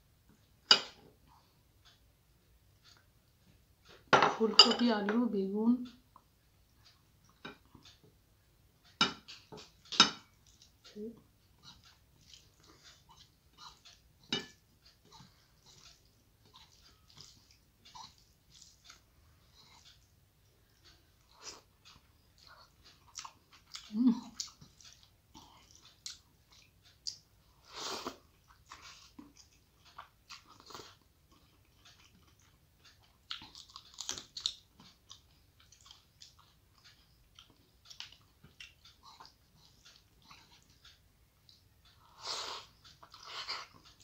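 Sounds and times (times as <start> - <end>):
chewing and wet mouth sounds: 8.8 - 44.0.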